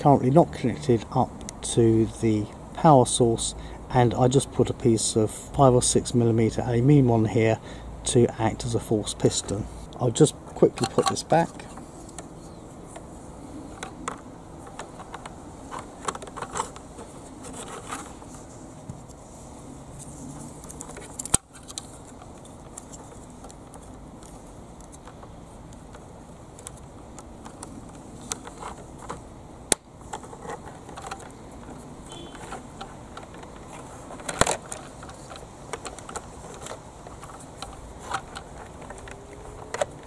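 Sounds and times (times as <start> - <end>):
plastic toy parts clicking: 10.7 - 12.3, 13.8 - 18.1, 26.6 - 40.0.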